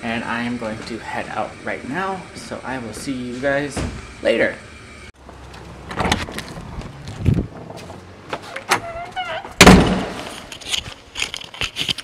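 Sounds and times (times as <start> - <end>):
loud door thud: 3.7 - 4.1, 9.5 - 10.3.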